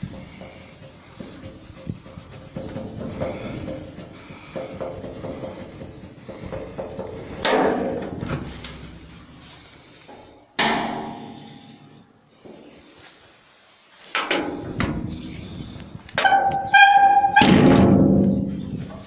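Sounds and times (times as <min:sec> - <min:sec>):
loud ringing bangs: 0:16.2 - 0:18.5.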